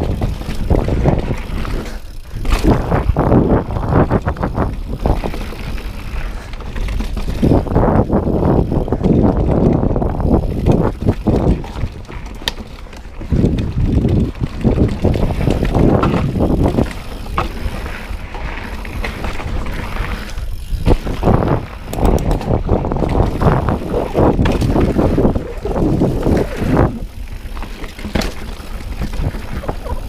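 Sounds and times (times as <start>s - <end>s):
bike rattling over bumps: 0.0s - 30.0s
bike tyres rolling on dirt: 0.0s - 30.0s
sharp clicks and knocks: 21.9s - 23.2s.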